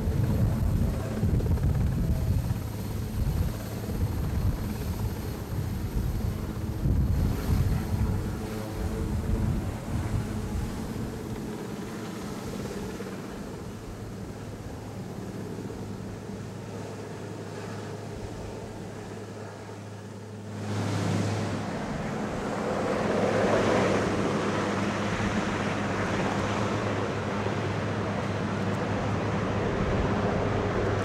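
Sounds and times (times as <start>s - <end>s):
helicopter rotors humming: 0.0s - 31.0s
broad rushing noise: 20.3s - 31.0s.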